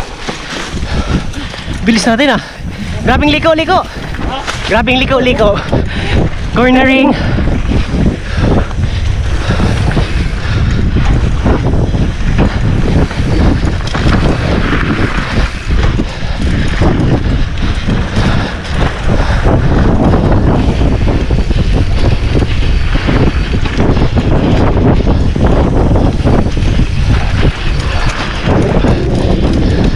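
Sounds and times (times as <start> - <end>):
bike rattling on dirt: 0.0 - 29.9
wind buffeting microphone: 0.0 - 29.9.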